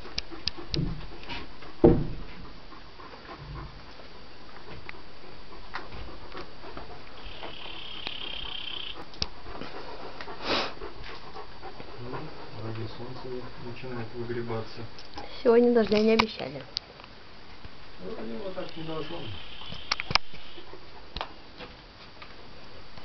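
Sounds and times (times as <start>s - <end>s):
dog panting: 0.0s - 16.7s, 18.0s - 22.9s
loud knock: 1.8s - 2.3s
high hiss: 6.8s - 11.6s, 17.9s - 20.7s.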